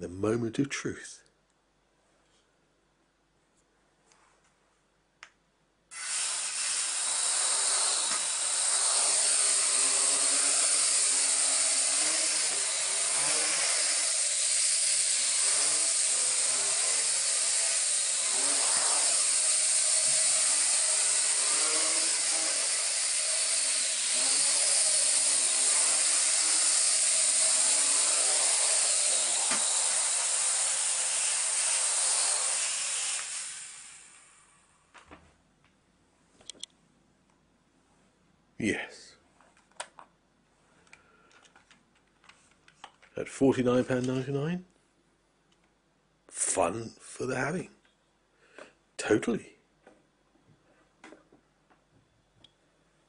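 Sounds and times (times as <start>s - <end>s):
toy drone propellers whirring: 5.9s - 34.5s.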